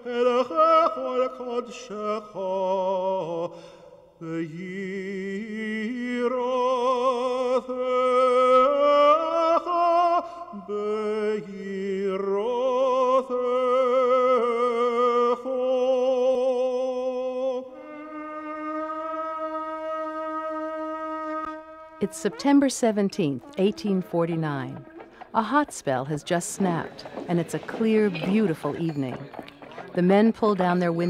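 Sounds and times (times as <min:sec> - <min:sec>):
solo voice chanting: 0:00.0 - 0:25.4
held wind instrument note: 0:17.8 - 0:29.8.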